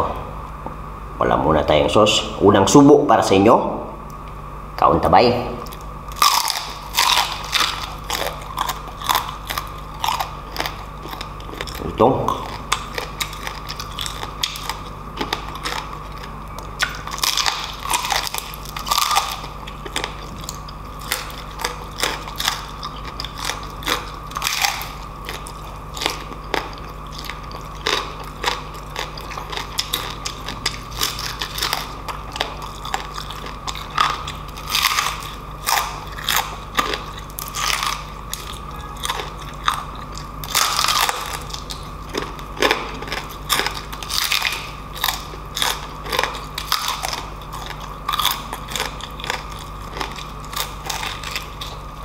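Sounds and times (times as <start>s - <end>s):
crunching and chewing: 5.6s - 52.0s.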